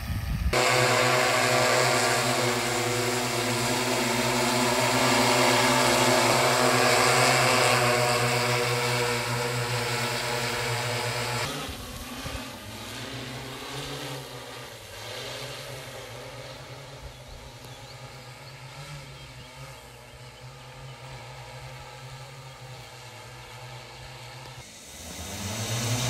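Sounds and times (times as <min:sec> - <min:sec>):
drone propellers humming: 0:00.0 - 0:26.0.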